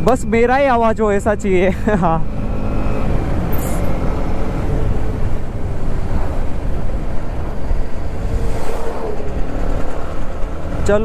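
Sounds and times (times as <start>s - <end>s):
motorcycle engine: 0.0s - 11.0s
road noise: 0.0s - 11.0s
wind buffeting microphone: 3.0s - 11.0s.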